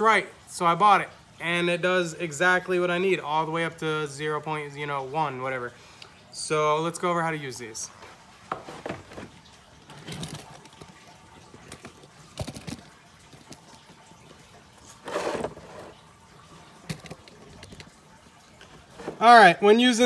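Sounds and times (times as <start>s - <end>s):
plastic case rustling: 8.5s - 14.0s.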